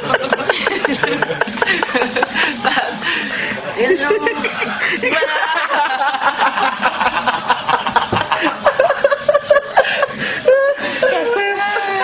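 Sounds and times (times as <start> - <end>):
people talking: 0.0 - 8.4, 11.0 - 12.0
people laughing: 0.0 - 12.0.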